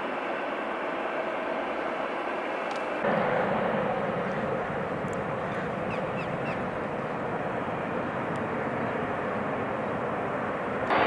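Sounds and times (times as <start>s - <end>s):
jet engines rushing: 0.0s - 11.0s
bird calling: 3.1s - 10.1s.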